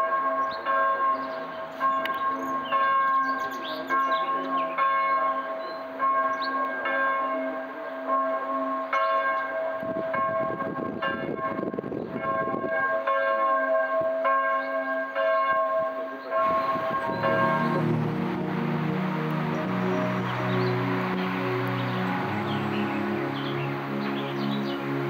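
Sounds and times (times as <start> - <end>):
church bell tolling: 0.0 - 25.0
soft background music: 16.5 - 25.0.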